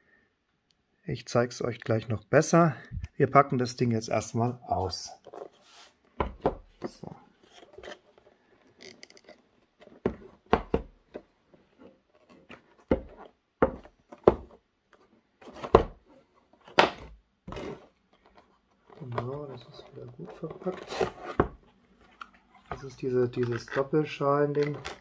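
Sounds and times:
cardboard box knocks and taps: 10.0 - 11.3, 12.8 - 14.6, 15.6 - 16.0
box scraping on wooden table: 15.4 - 18.0, 19.1 - 21.6.

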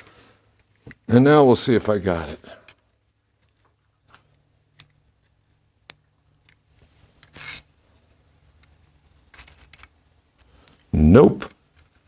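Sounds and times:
metal scrape: 7.2 - 7.7
small metal parts clicking: 7.2 - 7.7, 8.6 - 10.0.

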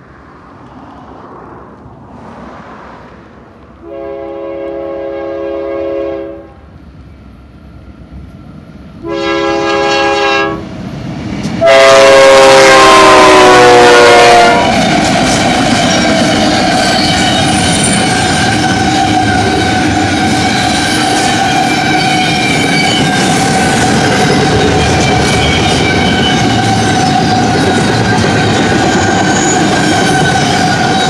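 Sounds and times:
train air horn blasts: 3.8 - 6.6, 9.0 - 10.6, 11.6 - 15.0, 15.9 - 31.0
locomotives rumbling by: 13.7 - 31.0.

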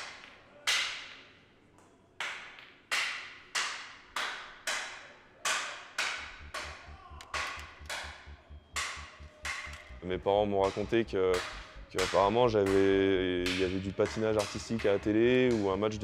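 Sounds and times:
hockey stick knocking on floor: 6.0 - 10.0
low rapid pulsing throb: 6.2 - 13.6.

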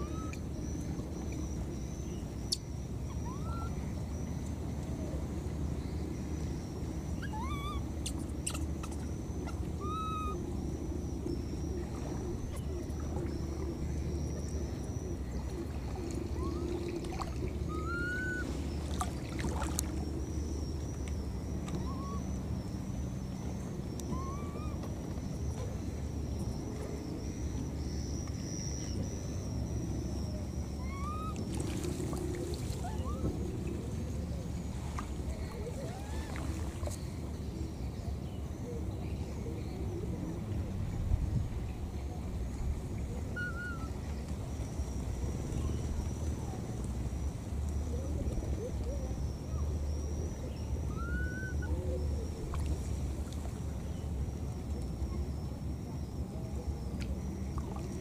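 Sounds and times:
high-pitched insect drone: 5.7 - 38.7
bird chirps: 7.2 - 10.4.

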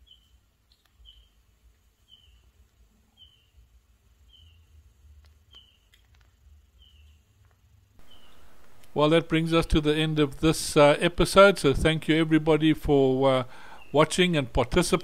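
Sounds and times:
faint high chirp: 0.0 - 1.4, 2.0 - 2.5, 3.1 - 3.6, 4.3 - 4.7, 5.5 - 6.0, 6.8 - 7.2, 8.0 - 8.8.

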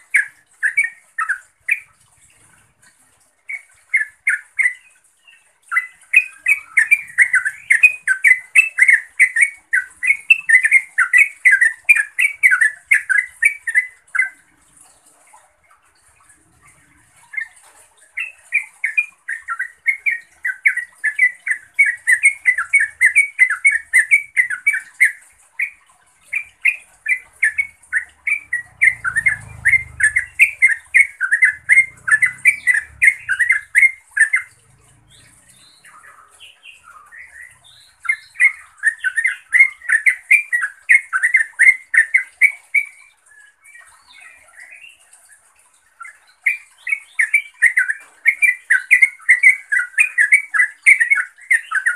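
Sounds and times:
bird chattering call: 18.2 - 42.9.

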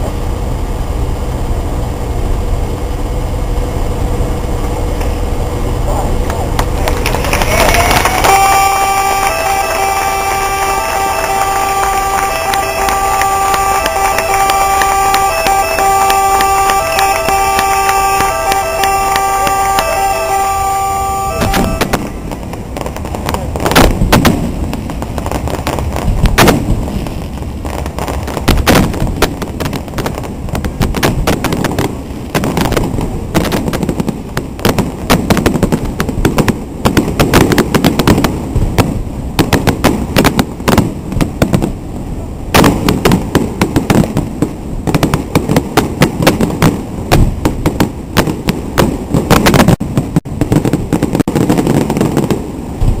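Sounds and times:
low rumble: 0.0 - 36.9
fireworks cracking and banging: 5.9 - 53.0.

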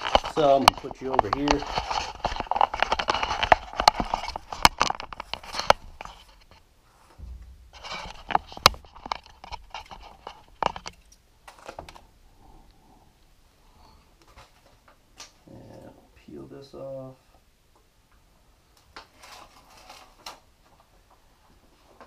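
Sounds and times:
scraping: 0.0 - 12.0
rustling handling noise: 0.0 - 12.1, 18.9 - 22.0.

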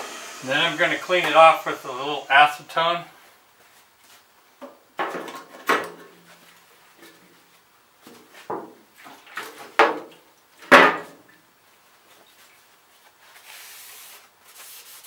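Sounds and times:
paper towel rustling: 12.3 - 15.0.

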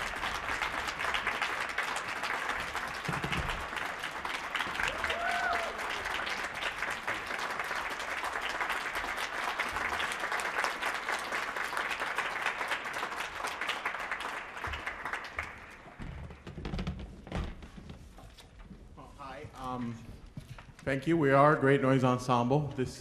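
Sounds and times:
audience applauding: 0.0 - 16.4.

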